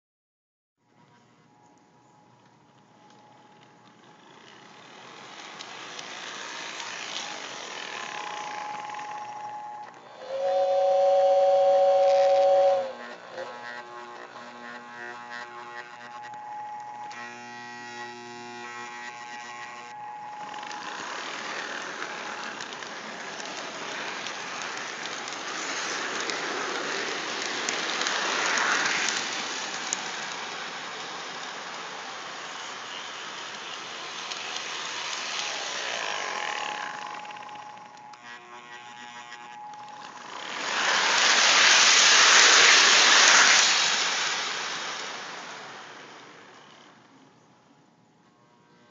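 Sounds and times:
model train whistle two-note chord: 8.6s - 13.1s
train rumbling on rails: 10.0s - 13.0s, 20.9s - 37.4s.

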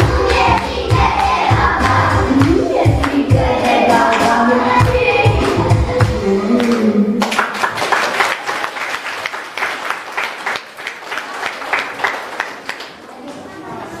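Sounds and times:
children's song with backing music: 0.0s - 6.9s
audience applause: 6.6s - 13.1s.

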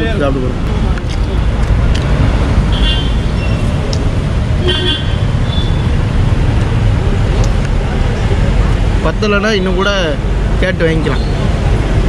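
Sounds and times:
road traffic rumble: 0.0s - 12.0s
vehicle horn toots: 2.7s - 3.2s, 4.6s - 5.8s.

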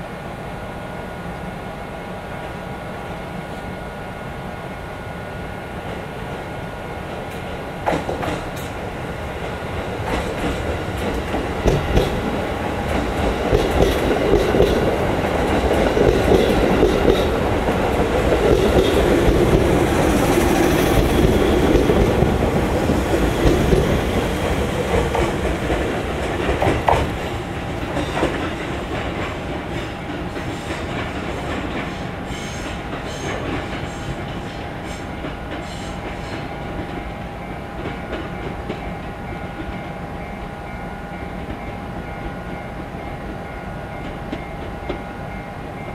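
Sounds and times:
train wheels clicking over rail joints: 7.1s - 37.1s.

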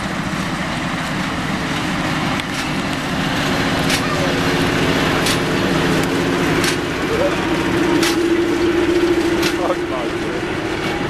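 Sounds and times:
diesel locomotive running: 0.0s - 11.0s.

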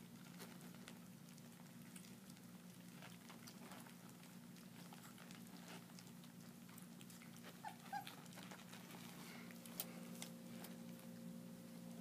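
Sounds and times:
puppies chewing and lapping: 0.0s - 12.0s
puppy whimpers: 7.2s - 8.7s.

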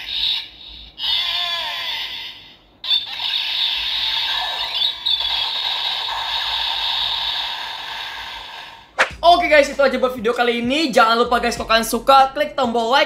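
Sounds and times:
toy electronic sound effects: 0.0s - 8.7s.

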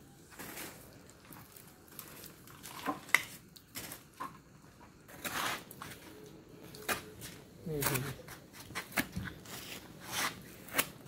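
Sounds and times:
scrapes and rustles: 4.9s - 11.0s.

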